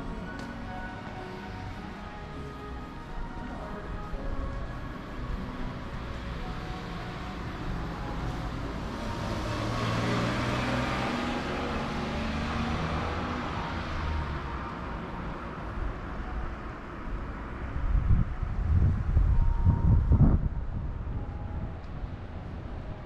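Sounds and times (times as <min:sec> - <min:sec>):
vehicle passing by: 0:08.2 - 0:14.6.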